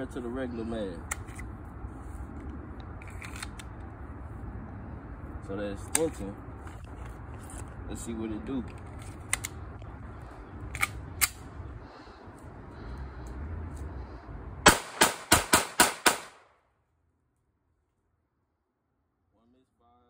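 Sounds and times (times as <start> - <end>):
pistol shots: 14.6 - 16.5.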